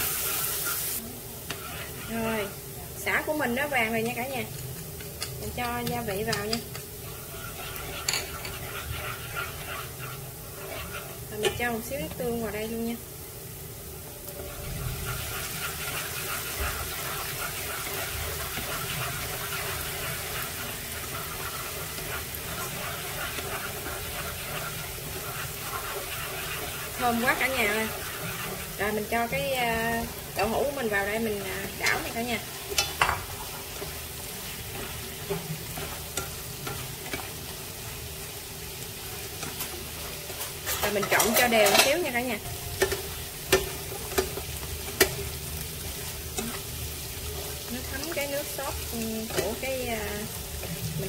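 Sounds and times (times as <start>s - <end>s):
food sizzling in hot oil: 0.0s - 51.0s
chopsticks tapping pan: 3.9s - 7.0s, 30.3s - 34.0s, 34.7s - 37.3s, 42.8s - 45.3s, 47.4s - 50.2s.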